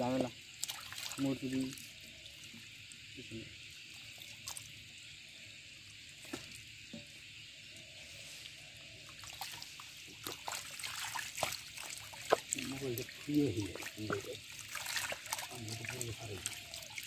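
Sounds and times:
water trickling through net: 0.0s - 3.1s, 9.0s - 17.0s
small splashes and clicks: 0.5s - 3.0s, 3.9s - 4.8s, 9.0s - 17.0s.

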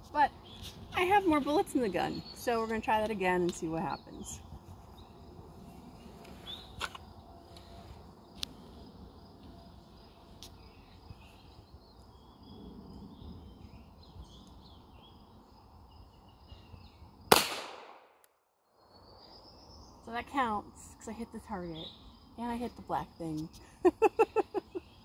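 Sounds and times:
birds chirping: 0.0s - 7.8s, 18.8s - 25.0s
insects chirping: 0.1s - 17.4s, 18.0s - 25.0s
pistol shot: 17.3s - 18.2s.

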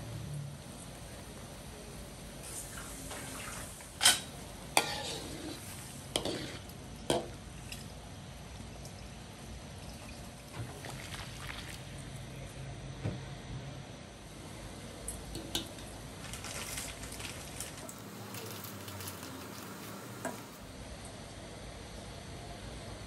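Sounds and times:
vegetables simmering in water: 0.0s - 12.7s, 14.3s - 21.3s.

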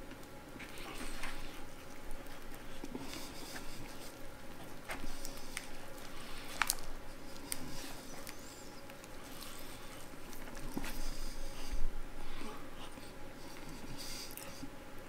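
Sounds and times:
meat tearing: 0.1s - 11.6s.

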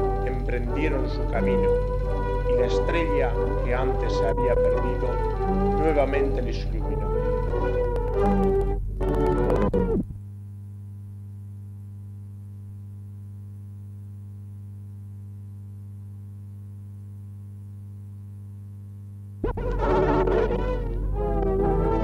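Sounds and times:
background music: 0.0s - 10.0s, 19.4s - 22.0s
steady electrical hum: 0.0s - 22.0s.

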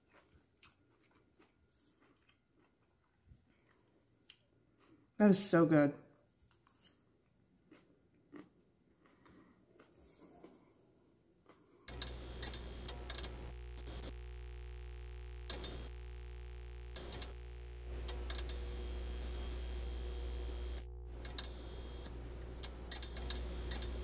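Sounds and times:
crackling buzzes: 11.9s - 24.0s
neon sign electric hum: 11.9s - 24.0s.

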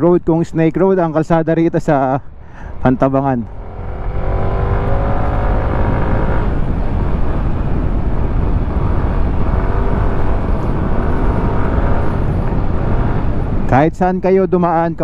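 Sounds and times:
wind rumble on microphone: 0.1s - 15.0s
motorcycle engine running: 2.7s - 13.6s.

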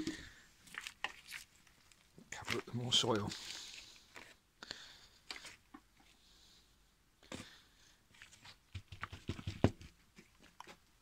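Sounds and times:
hands patting potting soil: 0.0s - 4.4s, 7.3s - 10.8s.

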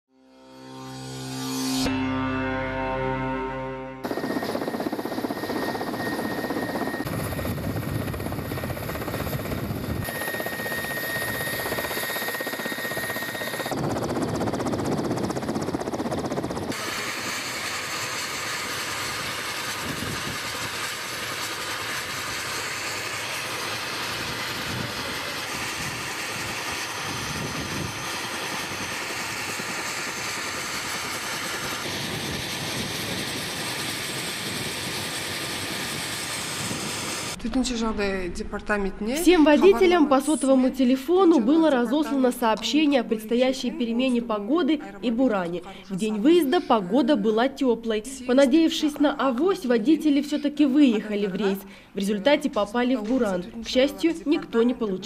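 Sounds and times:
helicopter engine and rotor: 4.0s - 37.4s.

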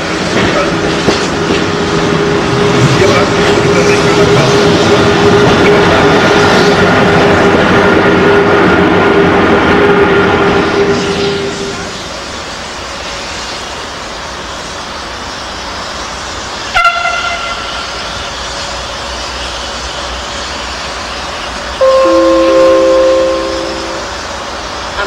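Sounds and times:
trains rumbling: 0.0s - 25.0s
locomotive horn toot: 16.7s - 17.8s, 21.8s - 24.3s
steady tone: 21.8s - 24.5s.

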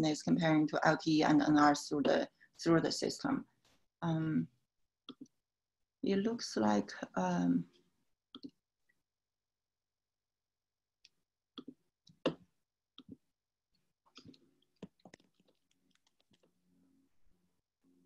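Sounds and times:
mouse and keyboard clicks: 14.2s - 16.5s.

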